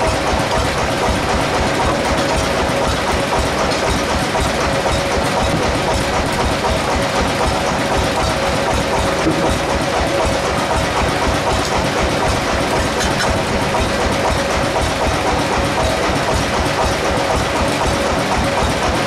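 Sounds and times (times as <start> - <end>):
sawmill engine droning: 0.0 - 19.0.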